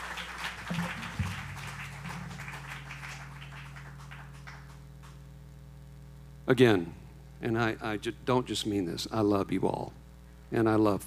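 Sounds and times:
audience applauding: 0.0 - 5.2
low electrical hum: 0.0 - 11.0
low thumps: 0.6 - 4.4.

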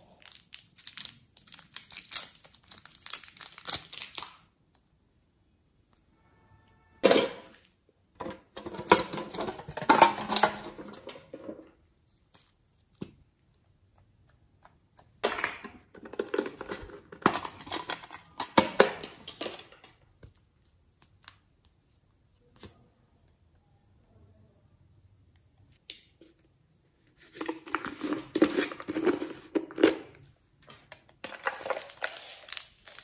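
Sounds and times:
crinkling handling noise: 27.1 - 33.0.

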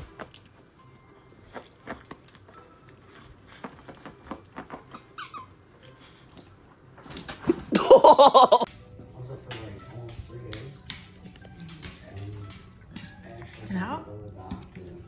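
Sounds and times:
toy squeaking: 4.7 - 6.0.

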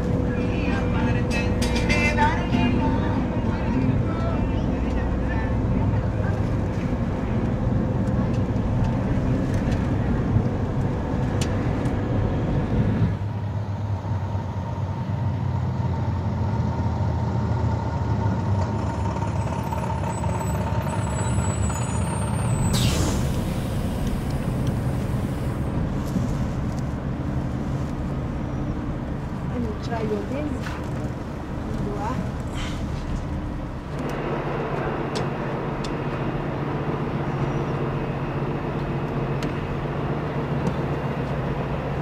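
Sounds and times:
bus engine rumbling: 0.0 - 42.0
air brakes hissing: 22.5 - 25.6, 32.5 - 33.0.

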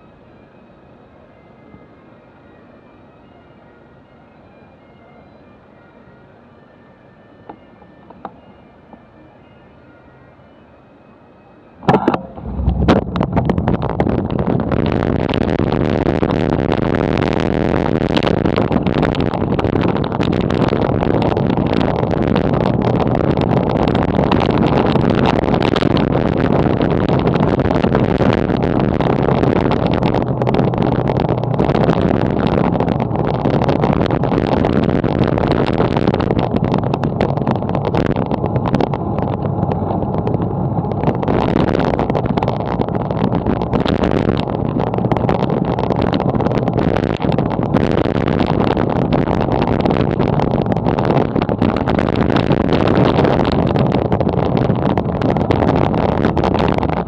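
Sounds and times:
bicycle tyre rumble: 11.8 - 57.0
wind buffeting microphone: 11.8 - 57.0.

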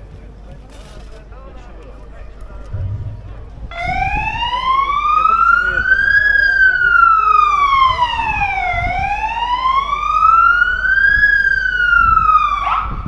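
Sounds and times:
fire engine siren wailing: 3.7 - 13.0.

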